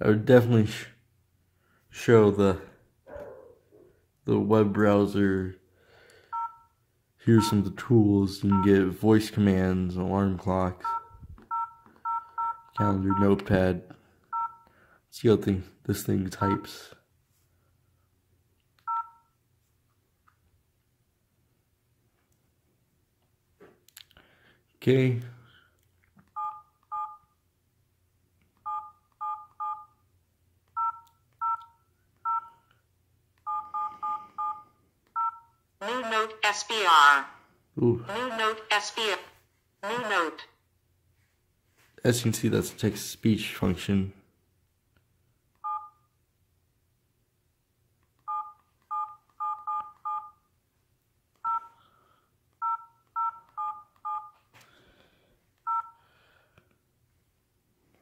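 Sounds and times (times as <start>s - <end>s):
phone keypad beeps: 6.3s - 6.7s, 10.8s - 13.3s, 14.3s - 14.6s, 18.8s - 19.3s, 26.3s - 27.3s, 28.6s - 30.0s, 30.8s - 32.6s, 33.4s - 35.5s, 45.6s - 46.0s, 48.2s - 50.4s, 51.4s - 51.8s, 52.6s - 54.4s, 55.6s - 56.0s.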